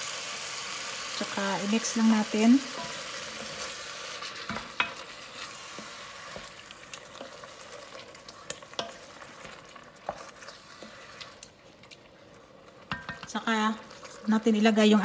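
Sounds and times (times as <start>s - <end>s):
meat sizzling: 0.0s - 15.0s
wooden spoon knocking pot: 12.9s - 13.4s.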